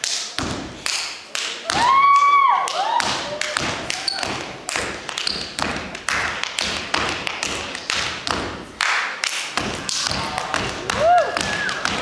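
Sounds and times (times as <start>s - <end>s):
hand claps: 0.0s - 12.0s
foot stomps: 1.6s - 2.2s, 3.0s - 8.7s, 9.5s - 12.0s.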